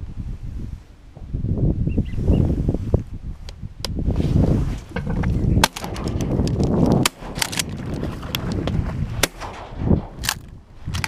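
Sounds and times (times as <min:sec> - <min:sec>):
wind buffeting microphone: 0:00.0 - 0:11.0
shotgun shots: 0:05.6 - 0:10.6.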